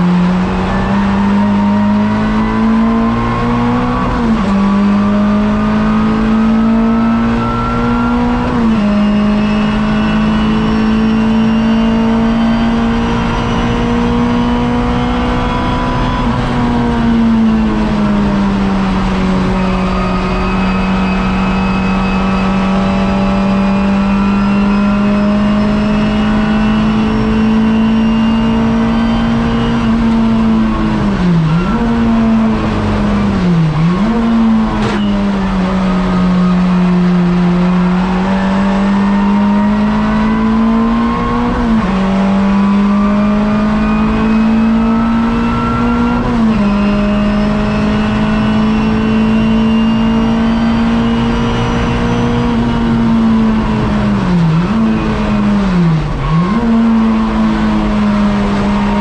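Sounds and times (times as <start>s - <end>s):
race car engine at high revs: 0.0s - 59.0s.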